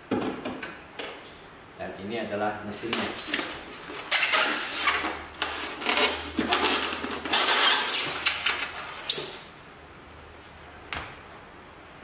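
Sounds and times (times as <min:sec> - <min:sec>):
foam packing squeaking and scraping: 0:02.8 - 0:09.5.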